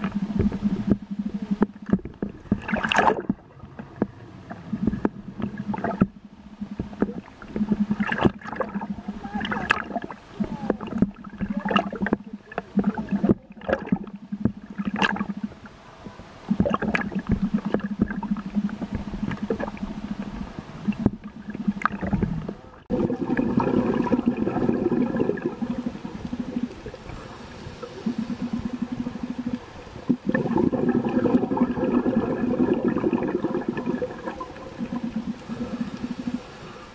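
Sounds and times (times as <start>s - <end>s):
diver's bubbles gurgling: 0.0s - 15.7s, 16.5s - 36.8s
low underwater hum: 0.0s - 36.9s.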